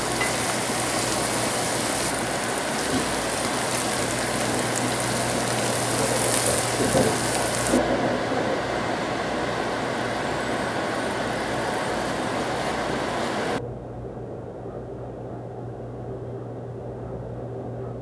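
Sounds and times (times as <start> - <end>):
corn sizzling in a frying pan: 0.0 - 7.8.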